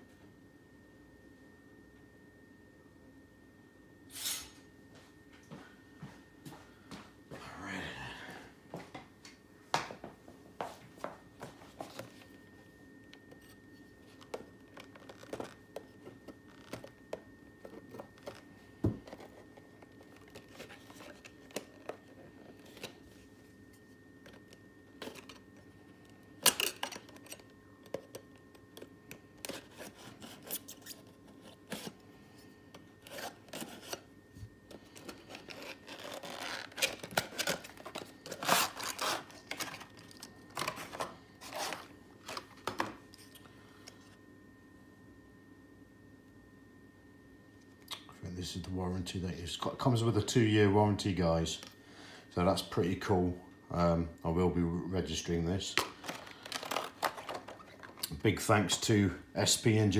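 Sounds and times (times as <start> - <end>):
packaging rustling: 17.6 - 23.0, 33.0 - 34.0, 34.7 - 43.4, 55.8 - 58.1.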